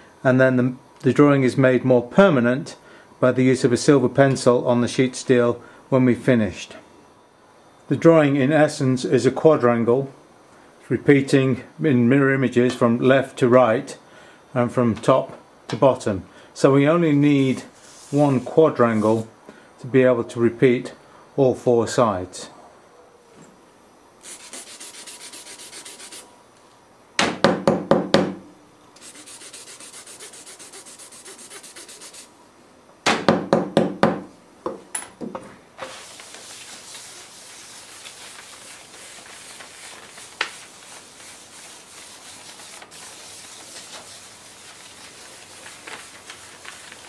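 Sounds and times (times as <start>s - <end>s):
rubbing on paper: 17.7s - 19.2s, 24.2s - 26.3s, 29.0s - 32.3s, 35.8s - 47.0s
rasp scraping chalk: 24.2s - 26.2s, 29.0s - 32.3s.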